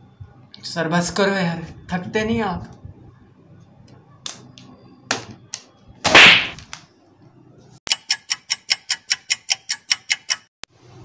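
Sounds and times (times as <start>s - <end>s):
fast clock ticking: 7.9s - 10.5s.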